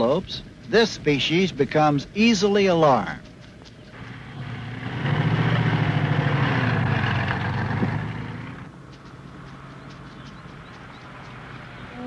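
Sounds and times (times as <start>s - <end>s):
truck engine humming: 0.0s - 12.0s.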